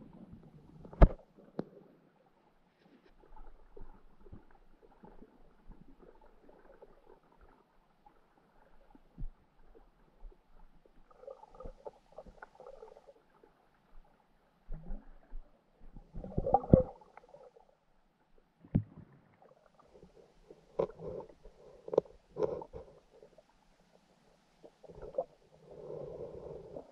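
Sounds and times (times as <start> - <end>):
low underwater rumble: 13.8 - 26.9.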